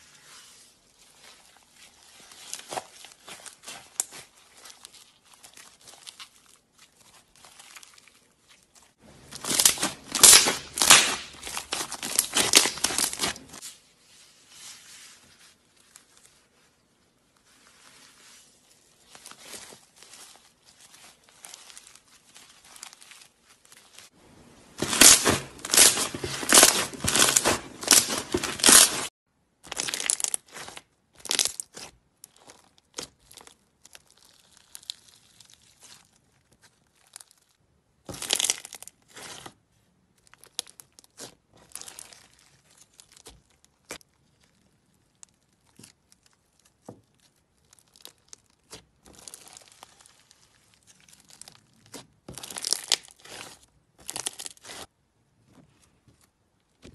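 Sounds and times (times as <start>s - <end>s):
slime crackling and popping: 1.2s - 13.6s, 24.8s - 54.9s.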